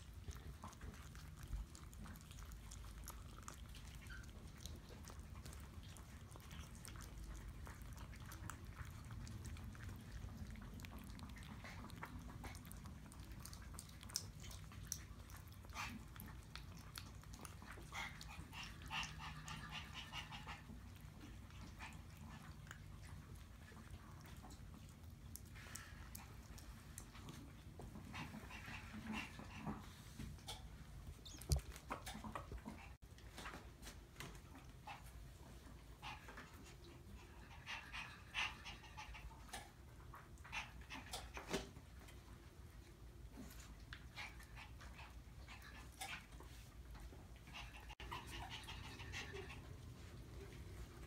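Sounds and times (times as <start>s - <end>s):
puppies whimpering and squeaking: 30.4s - 33.0s.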